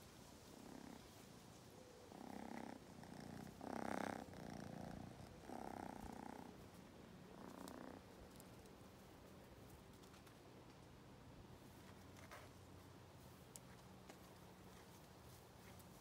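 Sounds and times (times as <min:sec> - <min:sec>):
kitten purring: 0:00.4 - 0:01.2, 0:02.0 - 0:08.8.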